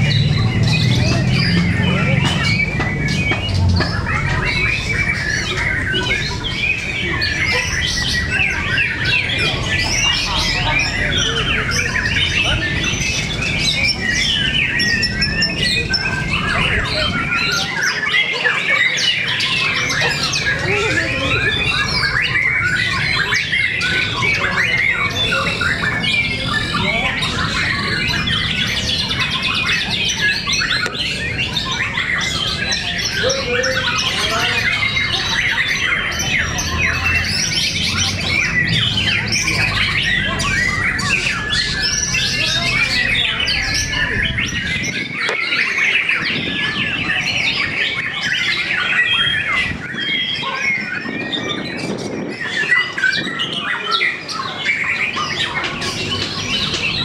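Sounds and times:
chorus of birds singing: 0:00.0 - 0:57.0.

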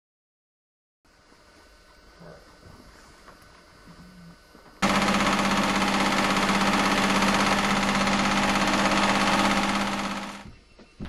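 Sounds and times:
electric sewing machine running: 0:04.8 - 0:10.5.

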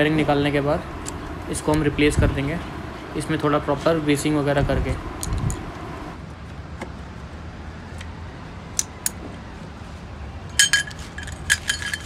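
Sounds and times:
metal tools clinking on metal: 0:10.6 - 0:12.0.

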